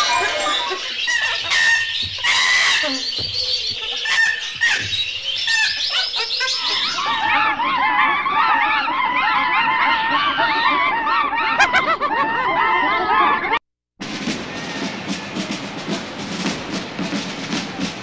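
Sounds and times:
bird calls and clicks: 0.0 - 7.4
bird trill: 0.0 - 8.8
chorus of wavering bird calls: 0.0 - 13.6.

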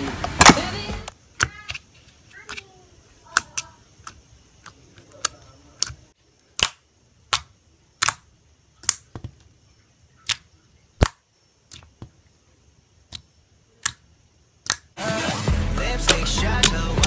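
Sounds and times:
slime popping clicks: 8.8 - 9.1.

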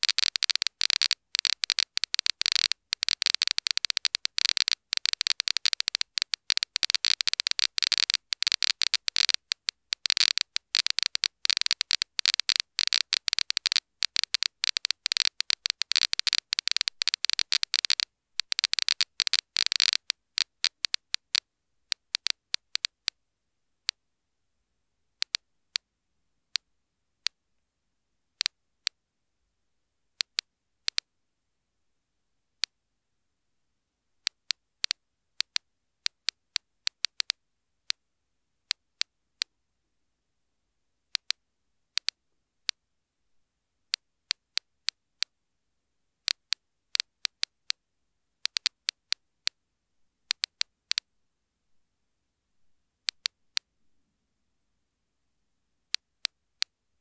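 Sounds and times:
geiger counter clicking: 0.0 - 23.2, 34.3 - 37.4, 42.0 - 42.2, 48.4 - 49.6, 50.3 - 51.1, 53.0 - 53.7.

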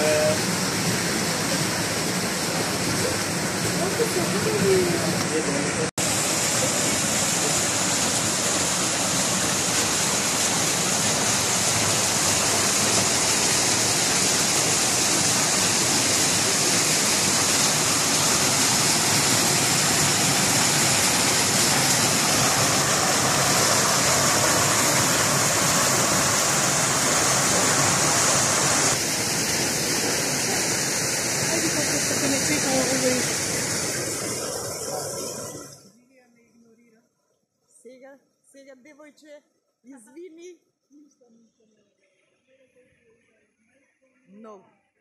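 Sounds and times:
water splashing into a pool: 6.0 - 35.9.

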